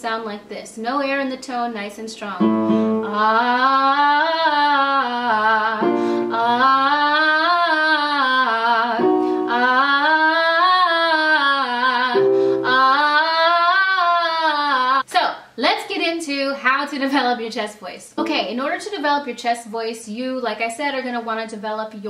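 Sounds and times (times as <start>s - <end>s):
woman singing vocal exercise: 0.3s - 15.6s.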